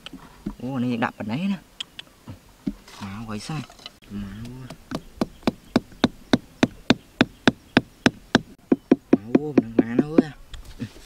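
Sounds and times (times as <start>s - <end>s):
hammer tapping bamboo stakes: 4.4s - 10.4s.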